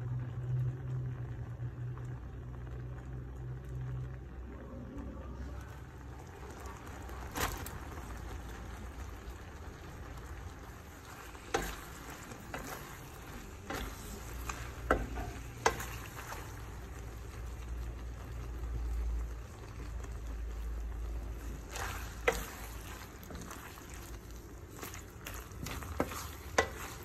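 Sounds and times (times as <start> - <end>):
sauce sizzling in a frying pan: 0.0 - 27.0
wooden spoon knocking on pan: 14.8 - 16.0, 25.6 - 27.0.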